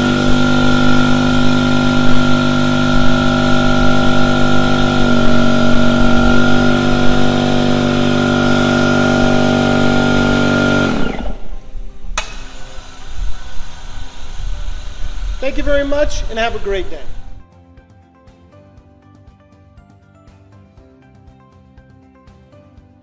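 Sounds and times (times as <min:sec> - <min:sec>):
air compressor running: 0:00.0 - 0:17.4
sharp click: 0:12.2 - 0:12.5.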